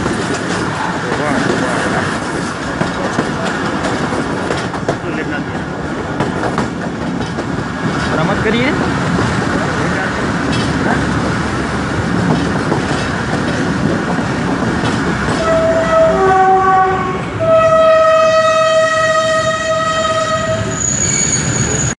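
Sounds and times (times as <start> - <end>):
train rumble and clatter on rails: 0.0 - 22.0
locomotive horn: 15.3 - 21.3.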